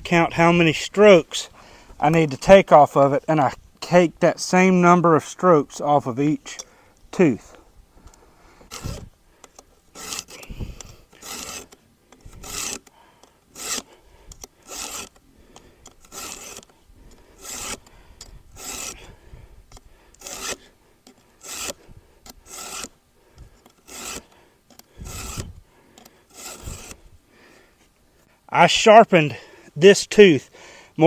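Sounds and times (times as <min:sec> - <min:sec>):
file rasping on chainsaw chain: 0:08.6 - 0:27.1.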